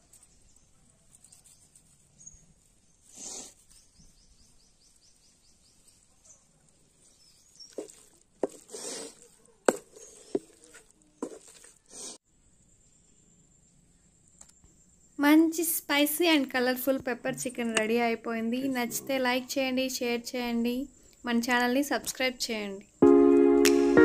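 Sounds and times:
spatula scraping a pan: 7.6s - 12.2s.

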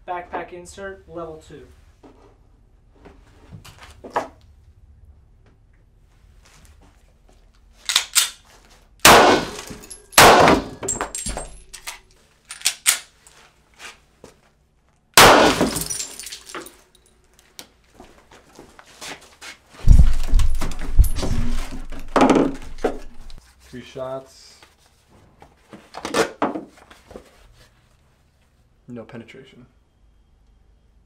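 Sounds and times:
pistol shots: 9.0s - 10.8s, 15.2s - 16.0s.

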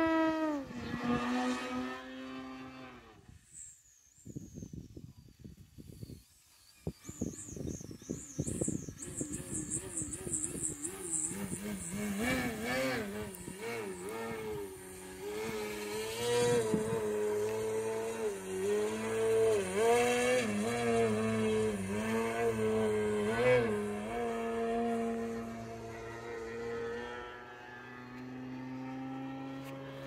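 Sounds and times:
model plane motor buzzing: 6.6s - 30.0s.

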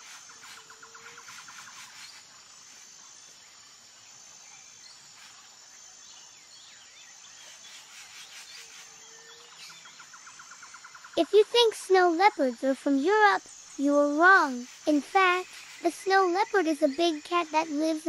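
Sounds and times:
low hiss: 0.0s - 18.0s
rapid insect trill: 0.0s - 18.0s.

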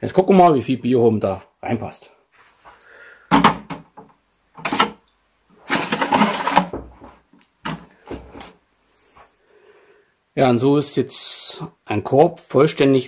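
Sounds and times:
plastic basket knocking and rattling: 3.3s - 4.0s, 5.6s - 8.5s.

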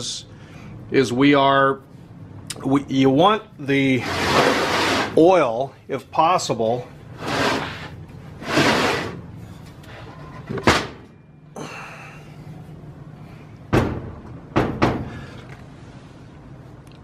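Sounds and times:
engine block scraping on metal: 3.9s - 5.2s, 7.2s - 10.3s.

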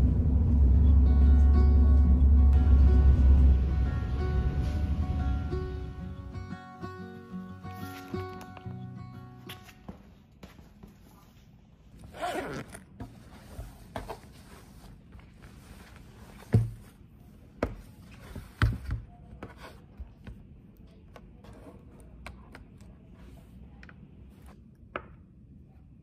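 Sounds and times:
zip pulled open: 12.0s - 13.0s.

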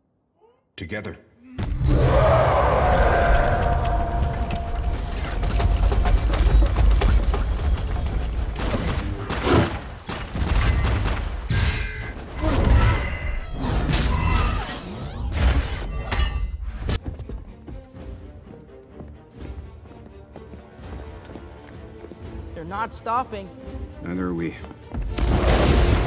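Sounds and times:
action film music: 1.6s - 26.0s.

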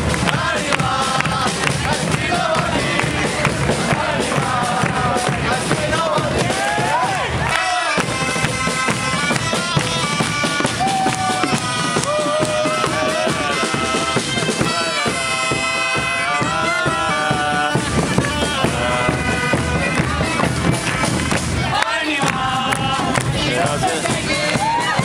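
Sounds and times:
bass drum beat: 0.0s - 25.0s
bagpipes playing reedy melody: 7.6s - 21.8s.

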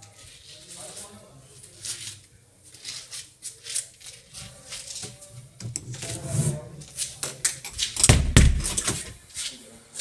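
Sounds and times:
footsteps on tiled floor: 0.0s - 10.0s
door handle rattling: 8.0s - 9.1s.

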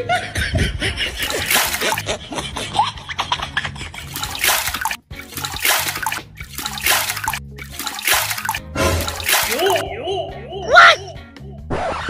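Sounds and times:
water splashing on concrete floor: 1.2s - 2.0s, 4.0s - 9.8s.

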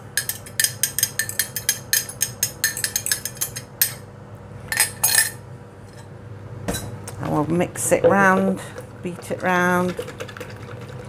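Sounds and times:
air fryer humming: 0.0s - 11.0s.

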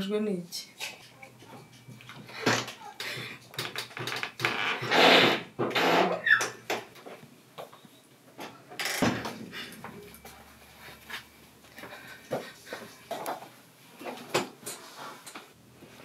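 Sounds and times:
door knocks and rustle: 8.8s - 10.1s.

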